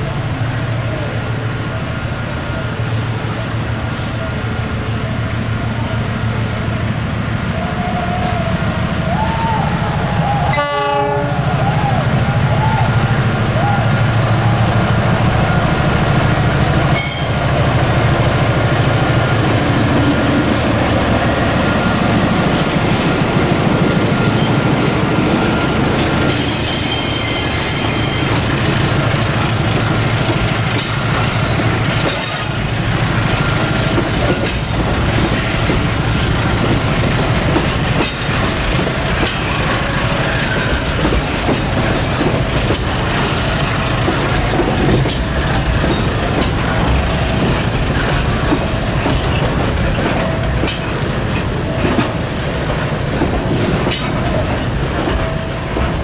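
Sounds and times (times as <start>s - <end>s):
locomotive engine hum: 0.0s - 56.0s
high wheel squeals: 25.4s - 28.5s
wheels clattering over rail joints: 33.8s - 56.0s.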